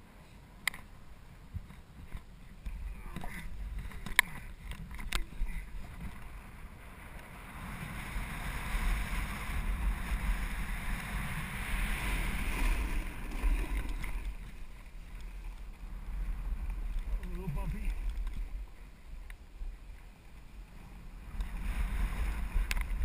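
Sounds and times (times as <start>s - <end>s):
wind rumbling on microphone: 0.0s - 23.0s
snowboard scraping snow: 5.6s - 18.6s, 20.7s - 23.0s.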